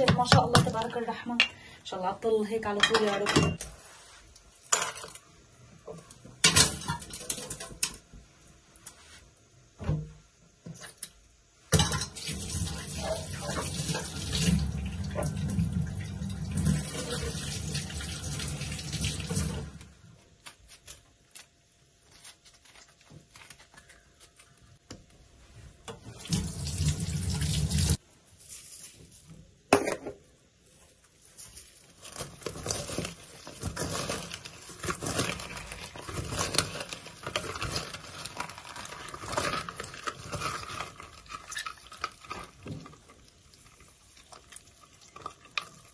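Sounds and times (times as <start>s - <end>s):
tap water running into colander: 11.8s - 19.9s, 25.9s - 28.0s
wet fruit squelching in colander: 31.2s - 45.9s.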